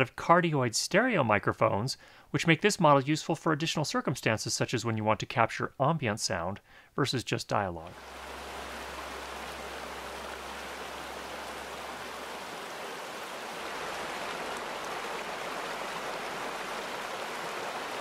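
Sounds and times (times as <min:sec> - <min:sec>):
creek babbling over stones: 0:07.9 - 0:18.0
low rumble of road traffic: 0:08.0 - 0:12.7.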